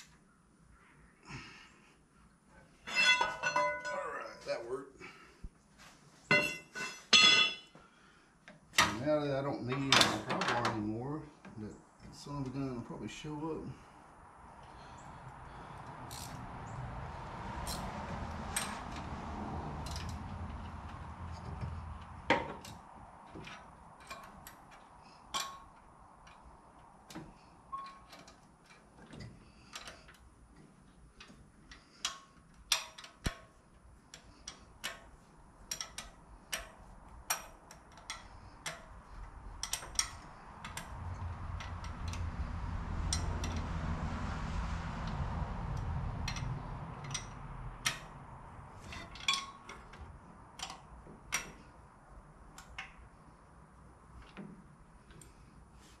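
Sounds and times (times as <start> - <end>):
tools and metal parts clinking: 2.8 - 4.4, 6.3 - 7.8, 19.8 - 26.5, 27.1 - 30.2, 34.1 - 42.3, 46.2 - 51.8.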